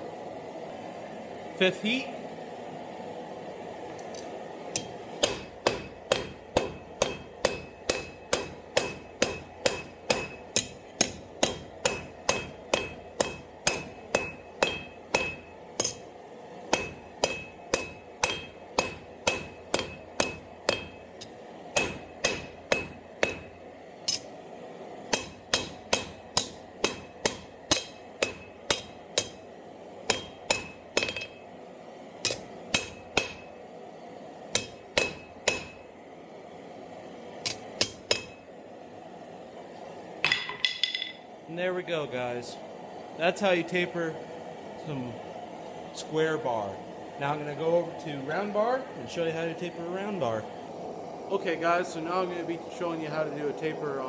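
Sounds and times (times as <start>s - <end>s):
hammer striking steel on anvil: 4.8s - 16.1s, 16.7s - 24.4s, 25.1s - 29.5s, 30.1s - 31.5s, 32.2s - 33.6s, 34.5s - 35.8s, 37.4s - 38.4s, 40.2s - 41.2s.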